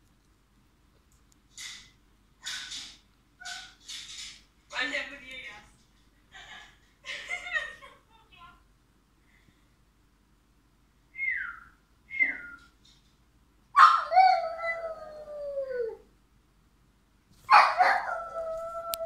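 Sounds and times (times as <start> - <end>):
dog howling: 13.8 - 16.0.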